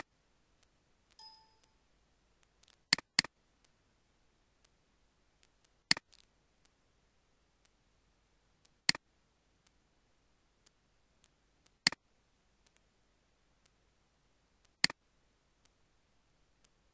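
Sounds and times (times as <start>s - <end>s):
computer mouse clicking: 14.6s - 15.0s.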